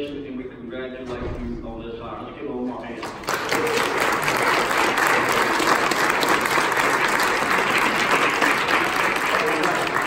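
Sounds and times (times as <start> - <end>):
crowd applauding: 3.0 - 10.0.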